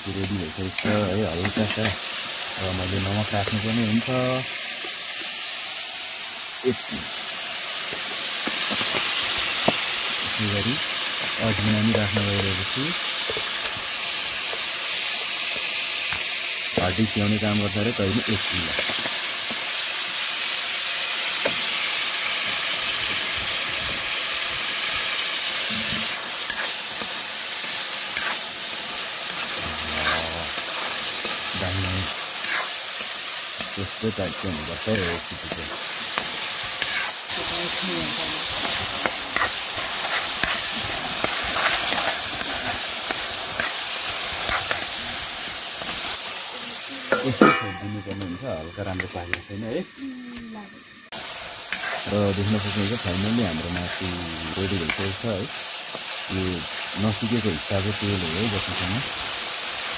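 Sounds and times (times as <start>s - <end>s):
chicken sizzling in a wok: 0.0s - 59.9s
metal spoon scraping a pan: 25.8s - 33.8s, 34.4s - 37.3s, 38.4s - 46.3s, 47.1s - 48.2s, 51.6s - 54.0s.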